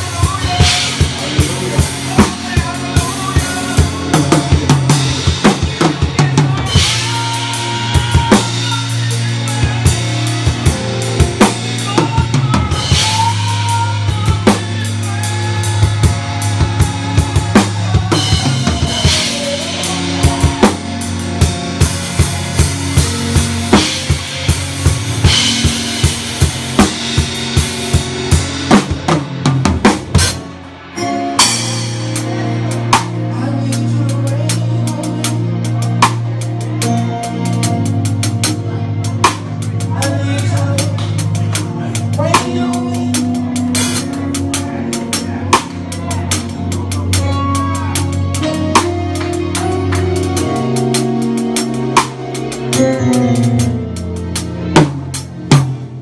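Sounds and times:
rapid snare and bass drum: 0.0 - 30.5
melody line: 0.0 - 56.0
sustained bass notes: 0.0 - 56.0.

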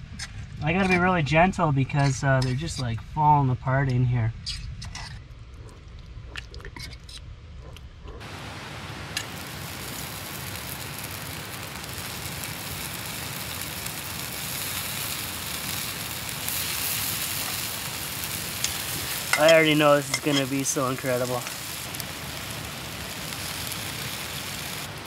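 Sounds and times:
chicken wings sizzling on grill: 8.2 - 25.0.

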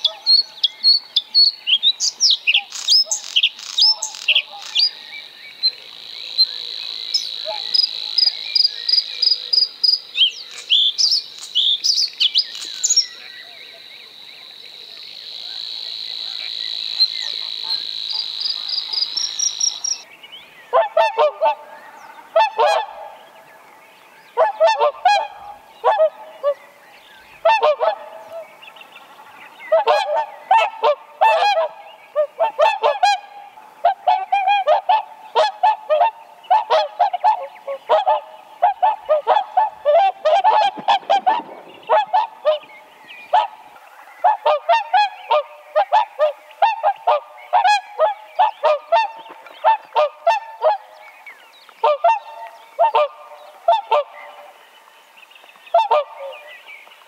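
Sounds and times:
swans calling: 6.4 - 8.5, 15.4 - 20.0, 20.7 - 23.2, 24.3 - 26.8, 27.4 - 28.6, 29.7 - 51.0, 51.8 - 54.6, 55.7 - 56.4.

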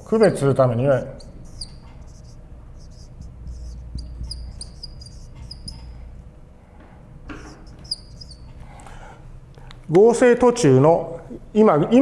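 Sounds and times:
low steady hum: 0.0 - 12.0
marker squeaking on whiteboard: 1.0 - 6.3, 7.3 - 8.8.

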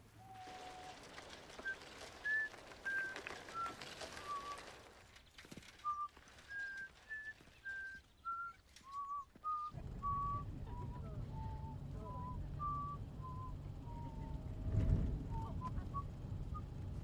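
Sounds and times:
bicycle rolling on gravel: 0.0 - 10.2.

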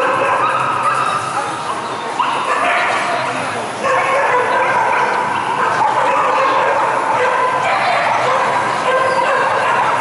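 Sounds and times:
dogs barking and yelping: 0.0 - 10.0.

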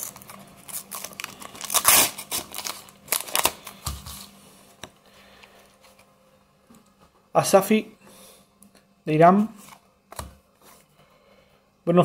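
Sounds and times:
wrapper crinkling and tearing: 0.0 - 4.3.

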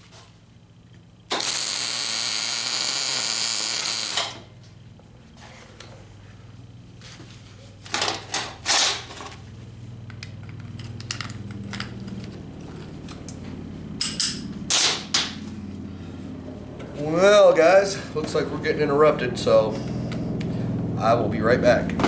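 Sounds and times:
low hum: 0.4 - 22.0
welder crackling bursts: 1.3 - 4.4.

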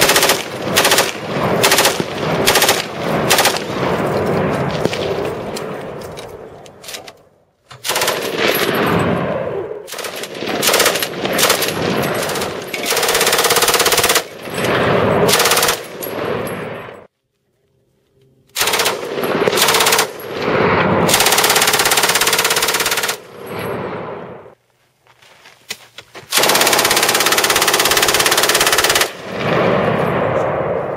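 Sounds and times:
machine guns firing: 0.0 - 5.5, 7.8 - 9.2, 9.9 - 16.7, 18.6 - 23.5, 26.3 - 29.9.

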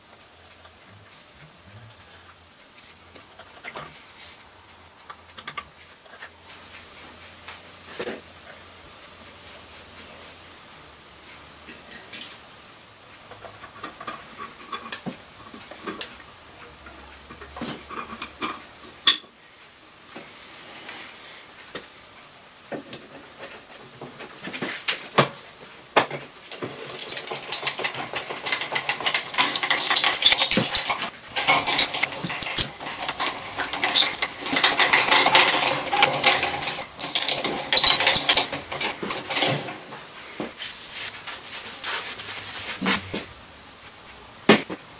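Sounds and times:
clinks of parts handled: 26.1 - 39.6.

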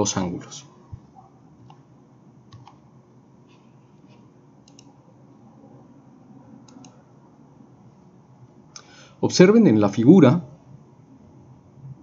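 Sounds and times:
low room noise: 0.0 - 12.0.

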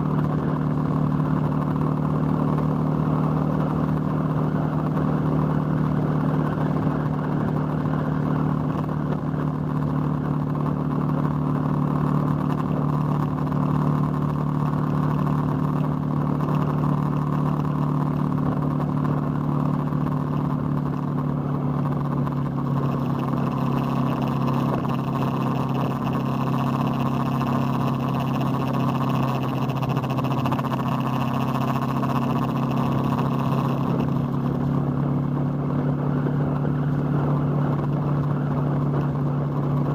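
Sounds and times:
motorcycle engine cruising: 0.0 - 39.9.

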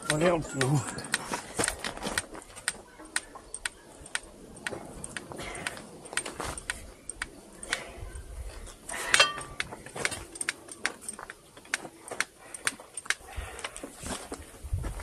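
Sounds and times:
metal tools clinking: 8.5 - 11.7
loud ringing metal clank: 9.2 - 9.6.

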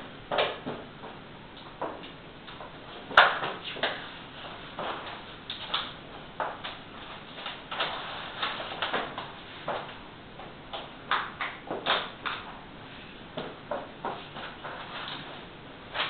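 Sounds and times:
whiteboard sheet knocking and rustling: 3.1 - 5.8.

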